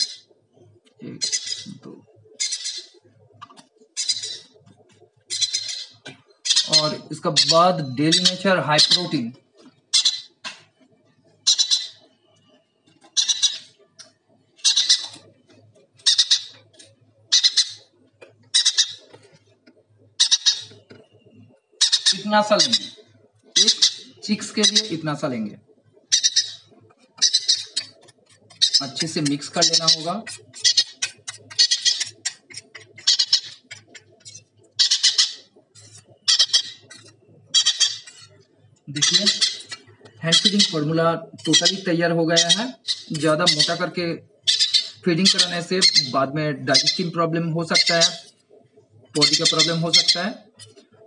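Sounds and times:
parrot chick calling: 0.0s - 0.3s, 1.0s - 3.0s, 3.9s - 4.6s, 5.3s - 9.2s, 9.9s - 10.4s, 11.4s - 12.2s, 13.1s - 13.8s, 14.6s - 15.2s, 16.0s - 16.6s, 17.3s - 17.9s, 18.5s - 19.1s, 20.2s - 20.9s, 21.8s - 25.0s, 26.0s - 38.3s, 39.0s - 47.1s, 47.7s - 48.4s, 49.2s - 50.7s.

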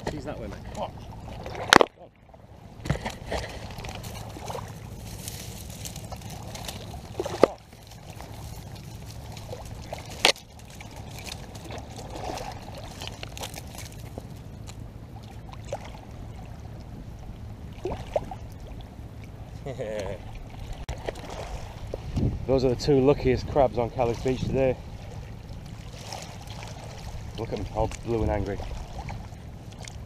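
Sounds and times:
water lapping over pebbles: 0.0s - 22.3s, 23.5s - 30.0s.

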